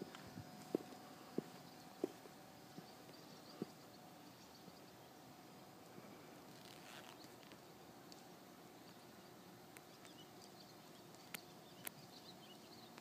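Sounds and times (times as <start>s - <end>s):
faint bird chirps: 0.4s - 5.4s.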